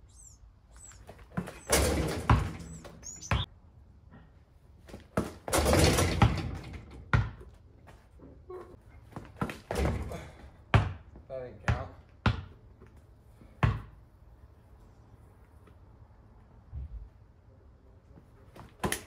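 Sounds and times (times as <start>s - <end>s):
birds chirping faintly: 0.0s - 3.5s
ball and shoes thudding on concrete: 0.8s - 3.5s, 4.8s - 14.1s, 18.2s - 19.0s
basketball rim and backboard rattling: 1.4s - 3.5s, 5.2s - 7.5s, 9.4s - 11.0s.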